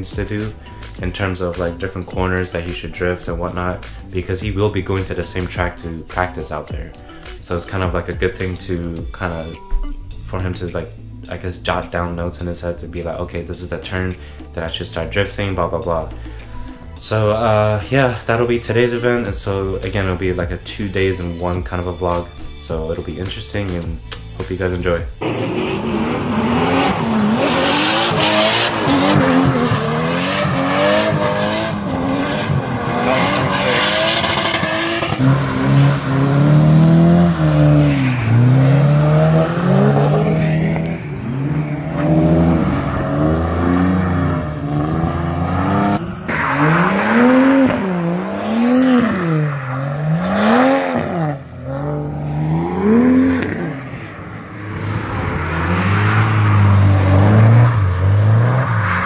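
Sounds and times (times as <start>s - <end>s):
car engines revving hard: 25.2s - 59.0s.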